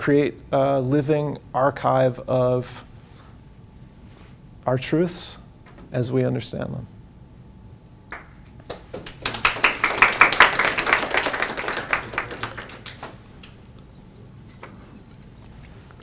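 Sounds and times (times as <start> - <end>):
audience applause: 8.7 - 13.2.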